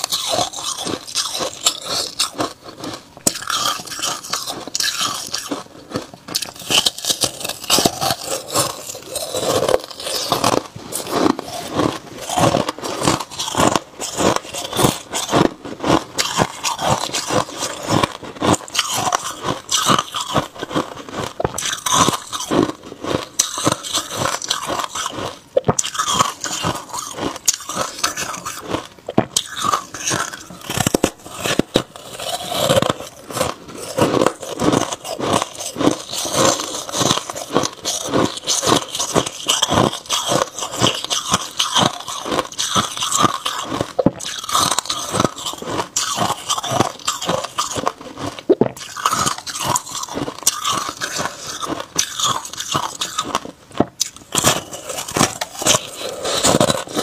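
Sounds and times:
ice being chewed: 0.0 - 57.0.

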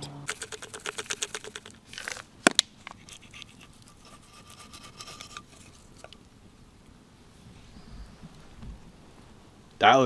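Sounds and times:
knife scraping on wooden board: 2.9 - 5.8.

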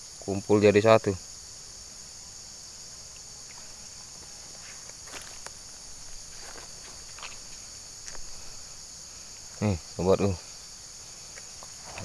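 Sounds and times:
insect chorus shrilling: 0.0 - 12.0
footsteps in grass: 3.4 - 9.6, 10.4 - 12.0.

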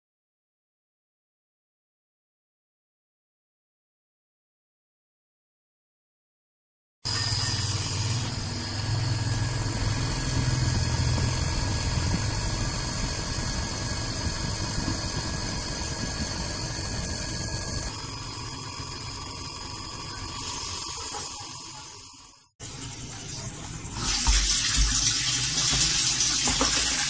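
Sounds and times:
electric water pump humming: 7.1 - 27.0.

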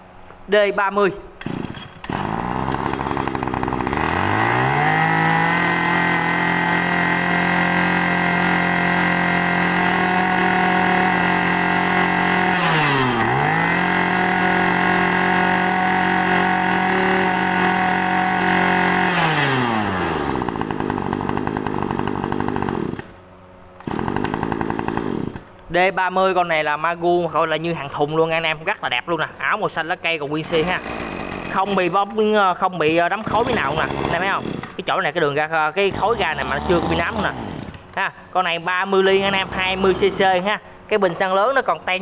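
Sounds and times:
brush cutter engine revving: 1.4 - 23.2, 23.8 - 25.5, 30.4 - 32.3, 33.1 - 35.0, 35.8 - 38.0, 39.0 - 41.3.

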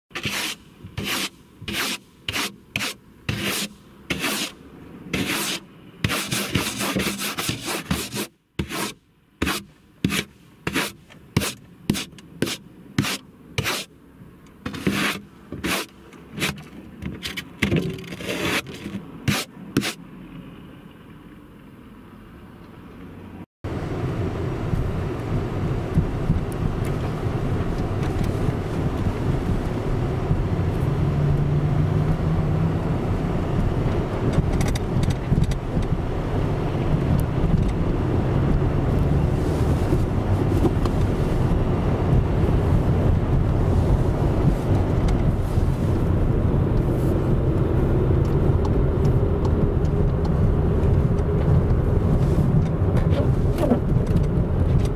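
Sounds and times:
car engine and tyre noise: 0.1 - 54.9
ice scraped off windshield: 0.2 - 13.9, 14.7 - 20.0.

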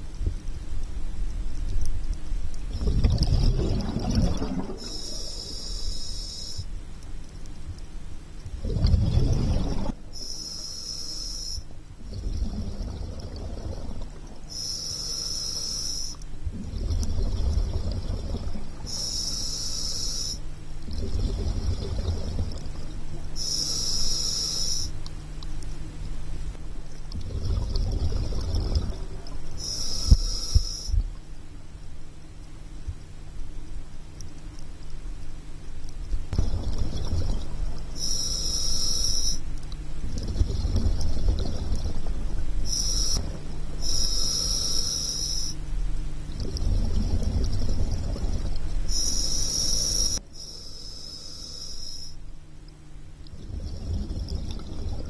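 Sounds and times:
steady low hum: 0.0 - 55.0
exhaled bubbles rumbling: 1.4 - 5.2, 8.4 - 10.2, 11.9 - 14.6, 16.3 - 19.0, 20.7 - 23.4, 26.1 - 31.4, 35.5 - 38.0, 39.7 - 44.0, 45.6 - 50.2, 53.2 - 55.0
hissing regulator inhale: 4.7 - 6.7, 9.8 - 11.7, 14.5 - 17.0, 17.6 - 20.5, 23.4 - 25.0, 29.6 - 31.0, 38.0 - 39.5, 42.6 - 45.6, 48.1 - 52.2.

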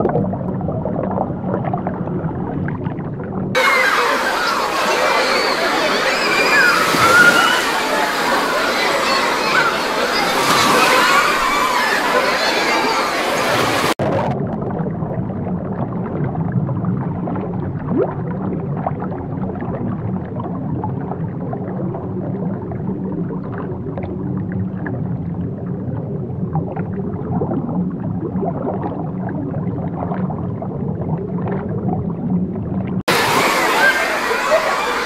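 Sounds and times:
underwater churning rumble: 0.0 - 35.0.

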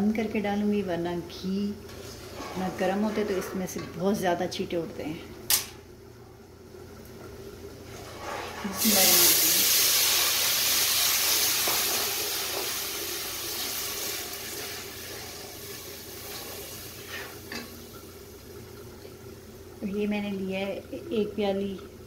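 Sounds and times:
hot fat hissing and sizzling: 8.0 - 17.9.

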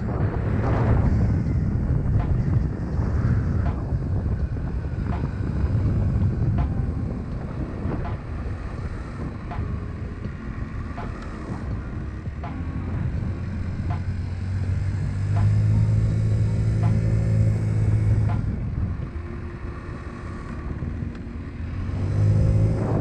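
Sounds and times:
scooter engine rumble: 0.0 - 23.0
wind buffeting microphone: 0.0 - 23.0.

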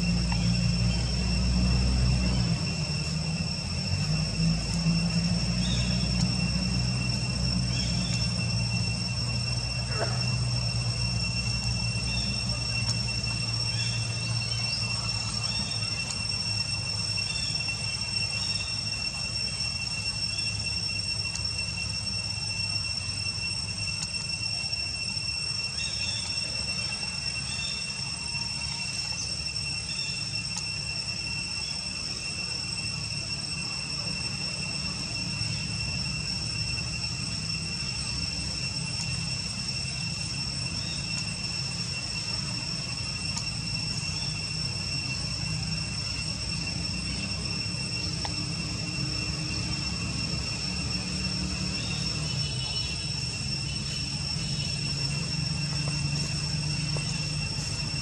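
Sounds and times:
insects droning: 0.0 - 58.0.

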